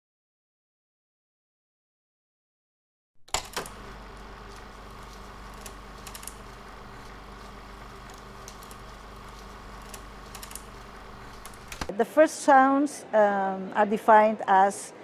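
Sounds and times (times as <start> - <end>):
electrical hum: 3.3 - 11.9
sharp clicks: 3.3 - 11.9.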